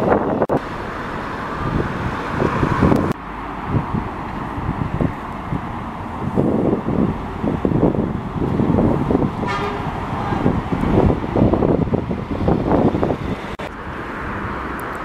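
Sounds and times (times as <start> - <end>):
wind buffeting microphone: 0.0 - 15.0
vehicle horn toot: 9.4 - 9.9.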